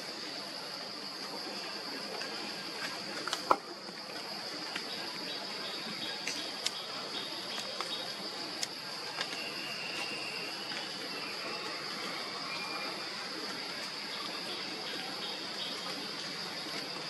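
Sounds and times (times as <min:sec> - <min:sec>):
high insect drone: 0:00.0 - 0:17.0
trickling and dripping water: 0:00.0 - 0:17.0.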